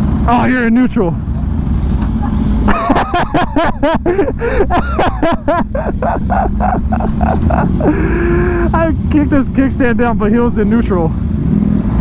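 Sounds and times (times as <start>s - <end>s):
motorcycle engines idling: 0.0s - 11.4s
person laughing hard: 2.7s - 8.8s.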